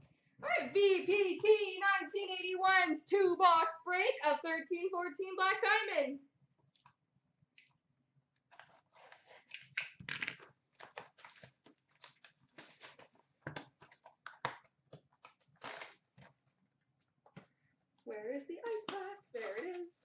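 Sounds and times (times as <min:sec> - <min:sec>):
packaging tearing and crinkling: 0:08.5 - 0:16.5, 0:19.0 - 0:20.0.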